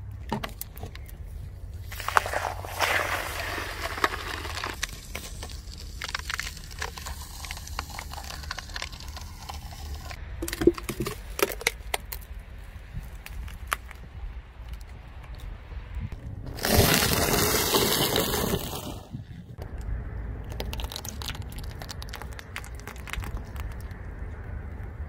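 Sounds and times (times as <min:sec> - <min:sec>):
low steady rumble: 0:00.0 - 0:16.6, 0:18.4 - 0:25.0
cardboard tube cracking: 0:01.8 - 0:12.2, 0:16.5 - 0:19.1
foam can squashed with hiss: 0:01.9 - 0:10.2, 0:16.5 - 0:19.2.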